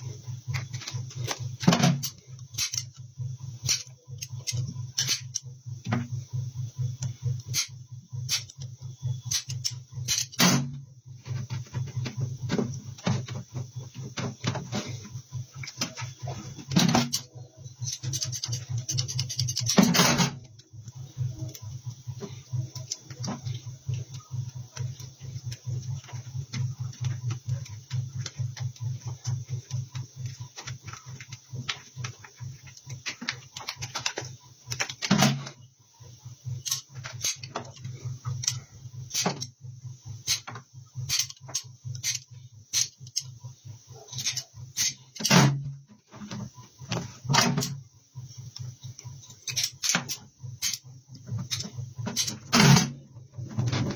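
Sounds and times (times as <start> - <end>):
steady low hum: 0.0 - 53.9
metal shears snipping rubber: 9.3 - 10.7, 16.7 - 20.4.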